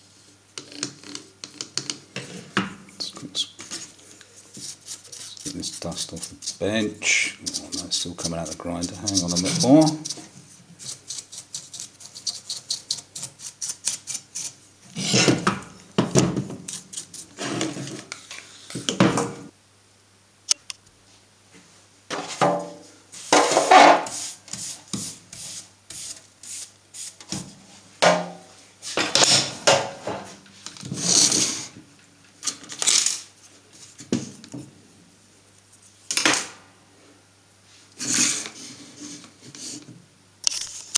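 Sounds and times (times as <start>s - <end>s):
hand brush sweeping metal: 3.8s - 10.2s, 23.1s - 27.2s.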